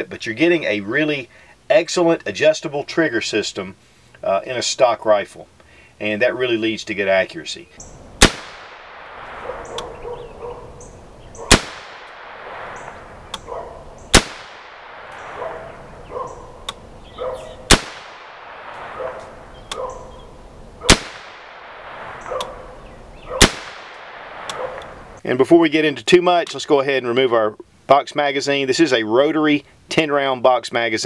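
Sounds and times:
rifle shots echoing: 8.2 - 20.2, 20.8 - 25.2.

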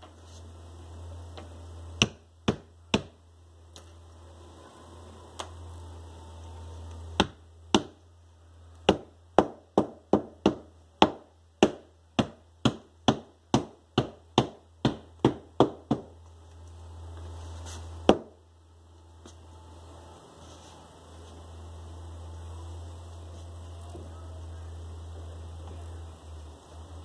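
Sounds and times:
mallet knocking metal tacks: 7.2 - 8.0.

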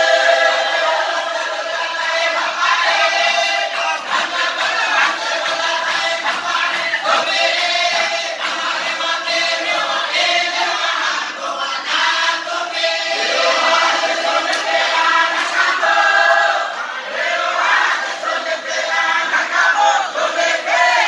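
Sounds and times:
men singing a chant: 0.0 - 21.0.

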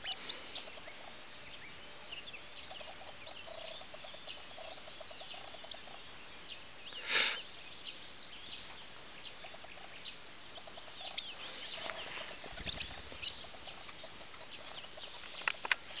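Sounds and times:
distant birds chirping: 0.0 - 16.0
short harsh bird sound: 6.9 - 7.5.

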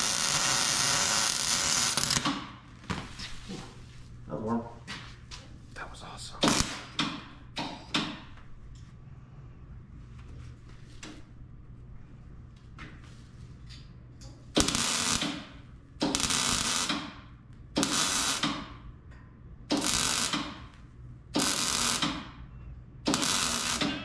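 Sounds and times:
welding arc crackling: 0.0 - 2.6, 6.4 - 7.0, 14.5 - 17.2, 17.8 - 18.8, 19.7 - 22.3, 23.0 - 24.0
low steady hum: 0.0 - 24.0.

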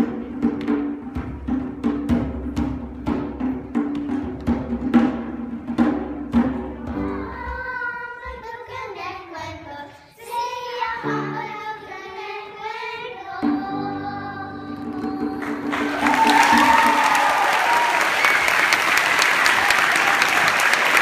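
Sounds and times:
children's choir singing: 6.9 - 17.7
applause: 15.4 - 21.0.

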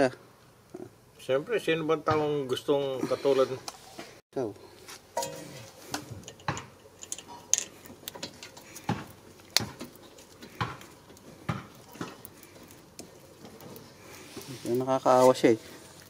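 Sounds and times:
light metallic clicks and clinks: 5.2 - 8.7.

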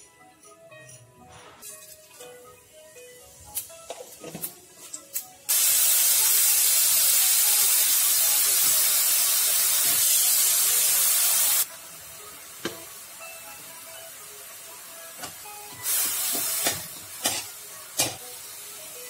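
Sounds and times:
paste sizzling in hot oil: 5.5 - 11.7, 14.3 - 19.0.

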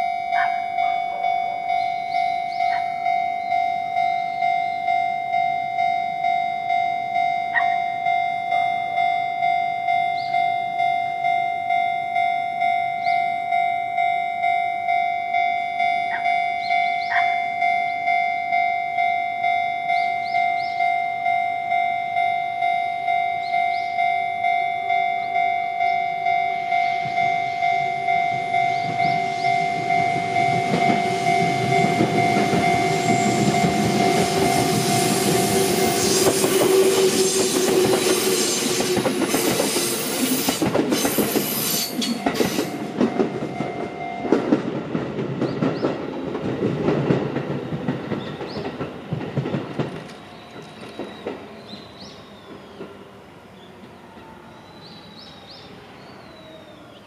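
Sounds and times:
level crossing warning bell: 0.0 - 47.5
train wheels clattering over rails: 28.3 - 53.1.

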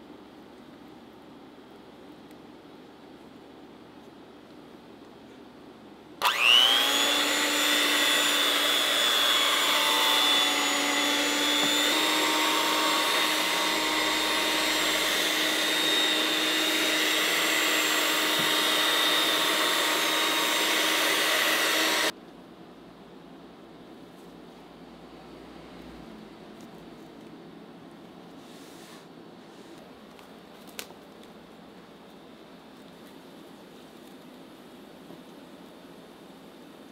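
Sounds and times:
electric mixer motor whining: 6.2 - 22.1.

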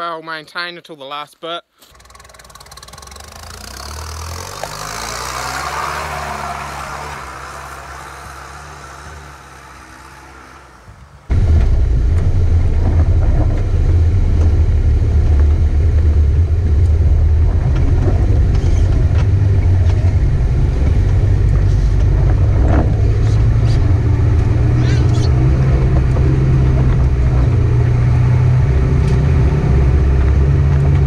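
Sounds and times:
pickup truck driving away: 1.9 - 31.0
low rumble of engine inside cab: 11.3 - 31.0.

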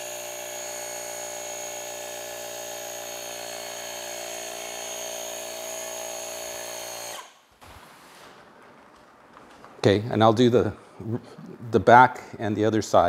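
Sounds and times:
portable air pump motor whine: 0.0 - 7.3.

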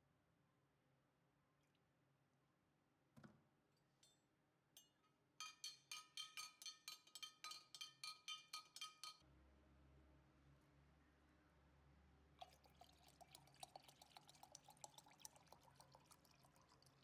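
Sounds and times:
spoon clinking in glass jug: 4.8 - 9.2, 12.4 - 17.0.

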